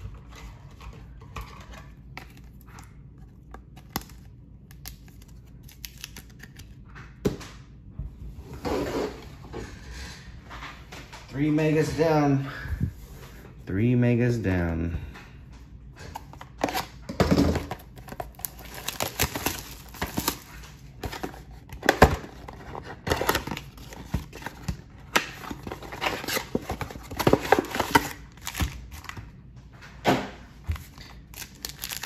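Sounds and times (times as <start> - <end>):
card packs being handled: 0.0 - 6.9, 17.5 - 29.5, 30.6 - 32.0
wrapping crinkling and tearing: 2.1 - 6.8, 17.8 - 29.2, 30.8 - 32.0.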